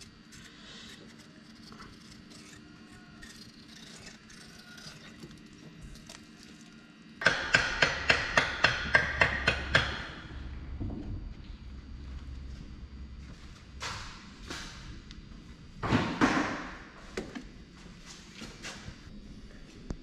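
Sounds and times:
hammer striking rapidly: 0:07.2 - 0:10.3.

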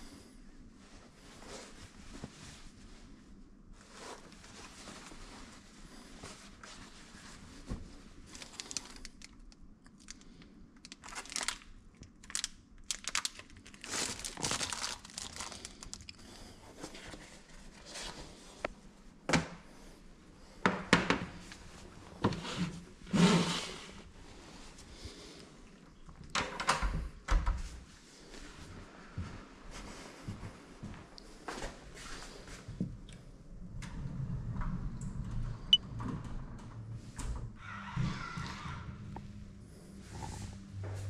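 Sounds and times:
paper bag crinkling: 0:08.2 - 0:16.1.

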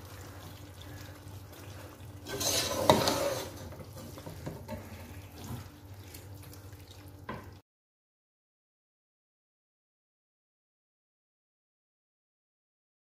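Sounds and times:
meat sizzling in a pan: 0:01.3 - 0:04.4.

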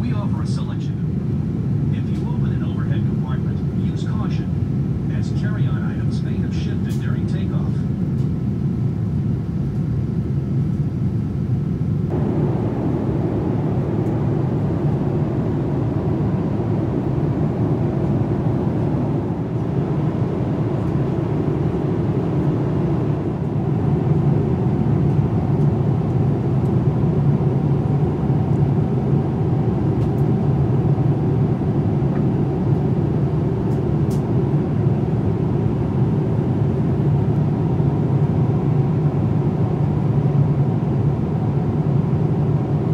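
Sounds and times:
faint steady whine: 0:00.0 - 0:42.9
jet engines rumbling in cabin: 0:00.0 - 0:42.9
rushing air: 0:12.1 - 0:25.2.

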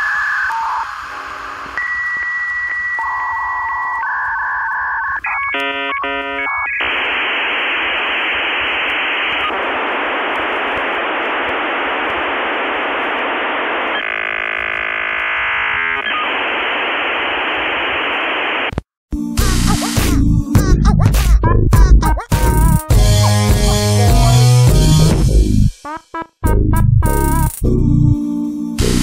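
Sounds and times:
telephone line static hiss: 0:00.0 - 0:20.1.

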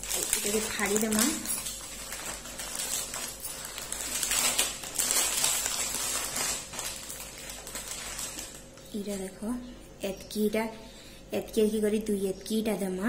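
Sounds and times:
plastic wrapper crinkling: 0:00.0 - 0:09.4.

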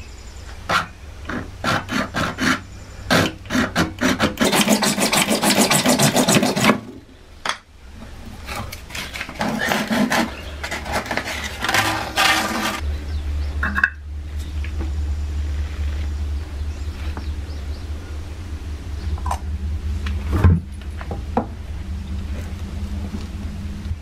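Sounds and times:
hand saw cutting plastic pipe: 0:00.7 - 0:07.0, 0:08.5 - 0:12.8.

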